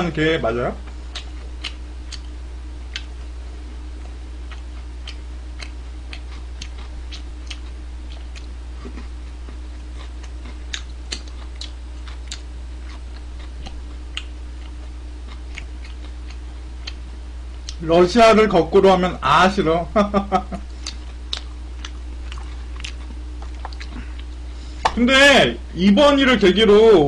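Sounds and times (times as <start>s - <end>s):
low electrical hum: 0.0s - 27.0s
chewing crunches: 0.8s - 17.8s, 20.6s - 25.0s.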